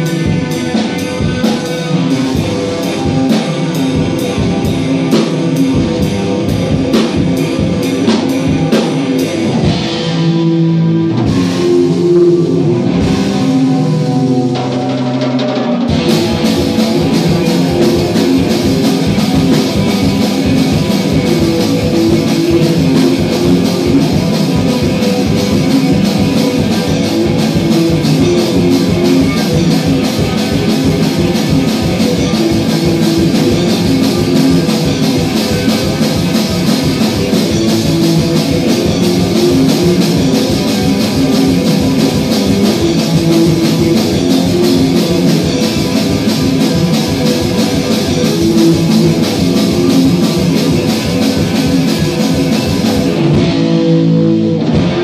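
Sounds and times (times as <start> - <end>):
drum kit: 0.0 - 55.0
electric guitar: 0.0 - 55.0.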